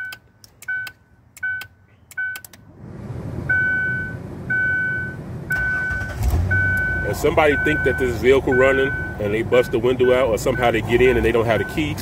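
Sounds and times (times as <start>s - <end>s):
car engine cranking and idling: 0.0s - 12.0s
repeating beep: 3.5s - 11.8s.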